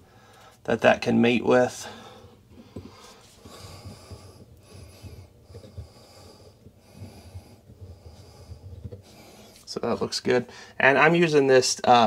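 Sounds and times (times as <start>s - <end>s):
person breathing slowly: 0.0s - 0.6s, 1.8s - 9.7s, 10.5s - 10.8s.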